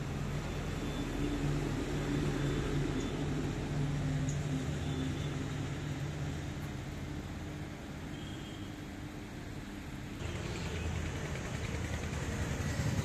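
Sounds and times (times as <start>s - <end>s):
machine humming: 4.3s - 13.0s.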